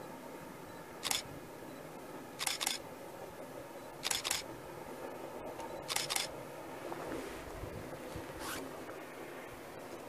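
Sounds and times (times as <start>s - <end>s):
faint background noise: 0.0s - 10.0s
camera shutter clicking: 1.0s - 1.2s, 2.4s - 2.8s, 4.0s - 4.4s, 5.9s - 6.3s.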